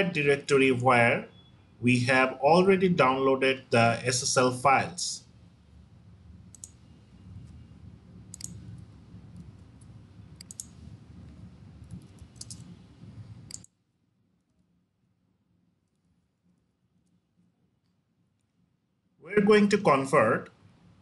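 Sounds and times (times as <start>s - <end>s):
low steady hum: 0.0s - 21.0s
keyboard clicks: 6.5s - 6.8s, 8.3s - 8.6s, 9.4s - 10.8s, 11.8s - 12.7s, 13.5s - 13.8s.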